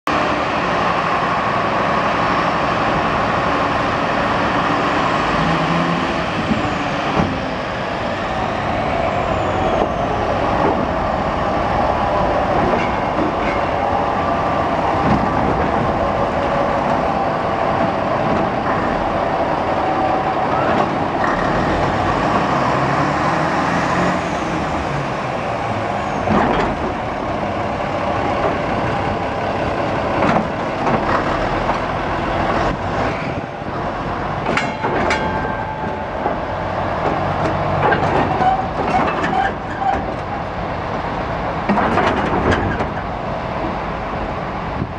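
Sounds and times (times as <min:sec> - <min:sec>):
diesel locomotive engine running: 0:00.1 - 0:44.9
short metal clanks: 0:34.4 - 0:36.4.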